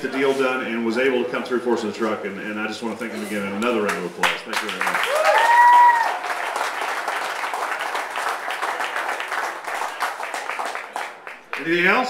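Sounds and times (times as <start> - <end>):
crowd clapping: 3.8 - 12.0
person whooping: 5.0 - 6.3.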